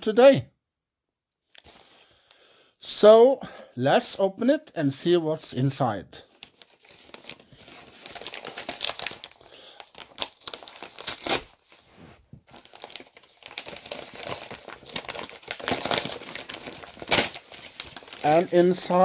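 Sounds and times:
packaging crinkling and tearing: 6.3s - 11.8s, 12.4s - 19.0s.

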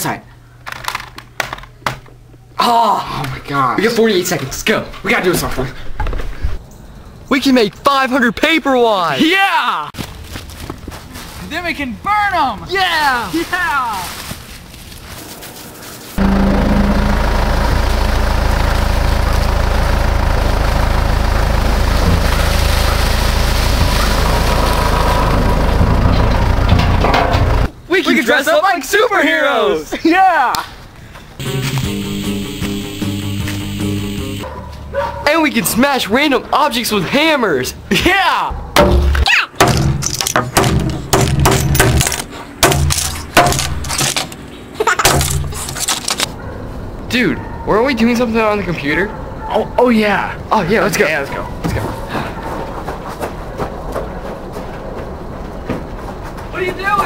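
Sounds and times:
tractor engine running: 16.2s - 27.7s, 31.4s - 34.5s
hammers smashing plastic on wood: 38.8s - 44.4s, 45.0s - 46.3s
breaking pieces clattering: 39.6s - 44.4s, 45.0s - 46.3s.

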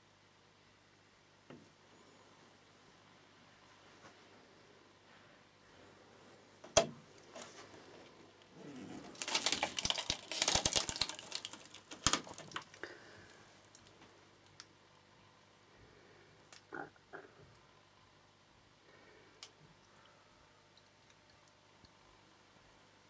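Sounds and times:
dense crackling and clicking: 8.4s - 15.0s.

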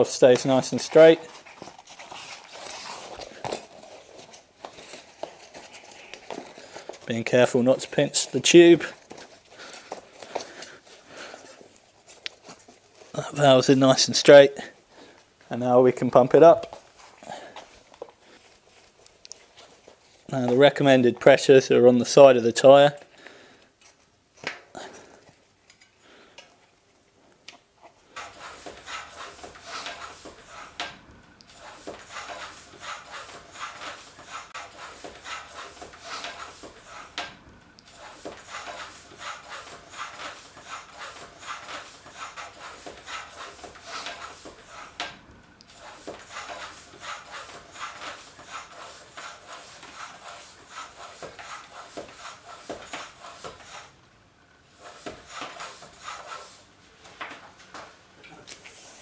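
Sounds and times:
floor pump strokes: 0.0s - 15.2s, 28.1s - 54.0s, 54.7s - 59.0s.

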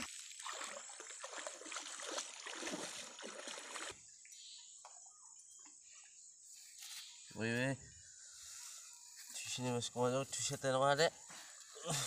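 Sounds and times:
water sloshing from wading: 0.0s - 4.0s.

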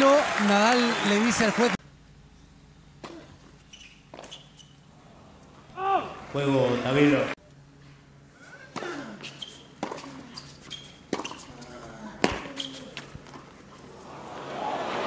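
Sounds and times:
crowd applause: 0.0s - 1.8s, 14.1s - 15.0s
shoe squeaks: 3.1s - 4.9s, 9.2s - 13.2s.

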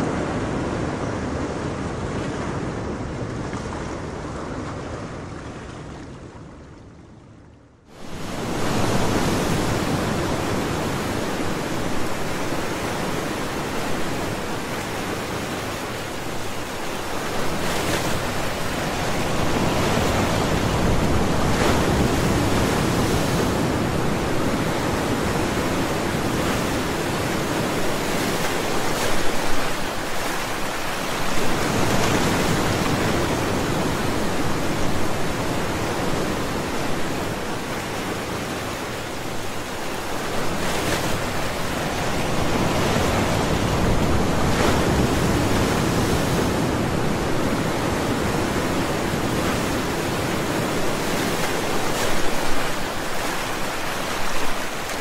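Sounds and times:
ocean waves breaking: 7.9s - 55.0s.

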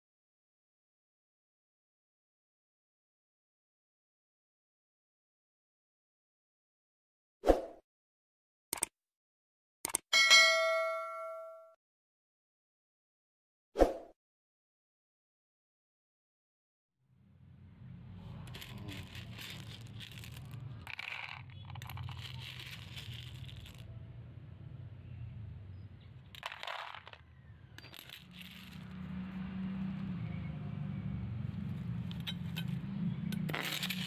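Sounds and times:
small hard objects clattering: 18.2s - 24.0s, 26.0s - 29.4s, 32.1s - 34.0s.

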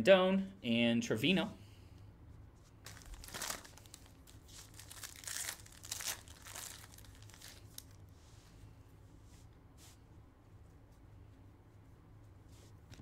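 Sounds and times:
foil wrapper crinkling: 2.8s - 8.0s.

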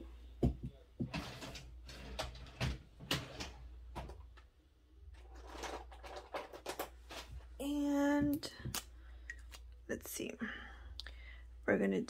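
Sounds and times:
paper money rustling and tapping: 5.2s - 7.5s.

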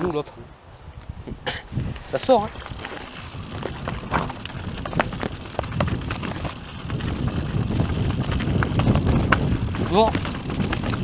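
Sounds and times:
bike clicks and rattles: 2.0s - 11.0s
tyres rumbling over loose stones: 2.3s - 11.0s.

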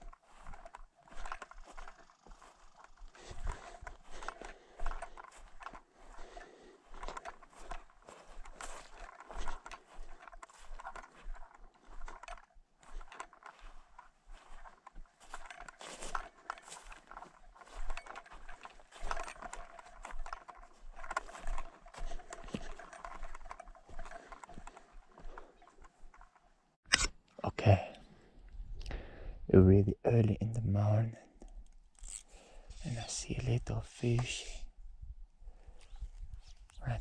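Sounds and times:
footsteps on grassy path: 0.0s - 26.6s
grass and shrubs rustling: 0.0s - 26.8s, 31.6s - 37.0s.

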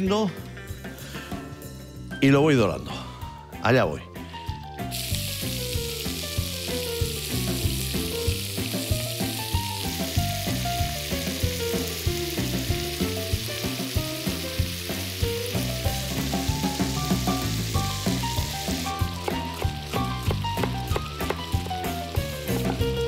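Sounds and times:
fish sizzling in hot oil: 4.4s - 23.0s.

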